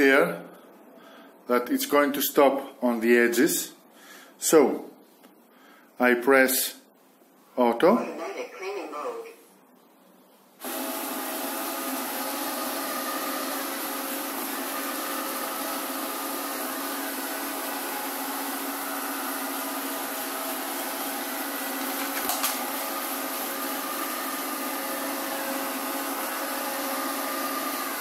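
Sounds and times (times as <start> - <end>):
robot vacuum cleaner whirring: 10.6 - 28.0.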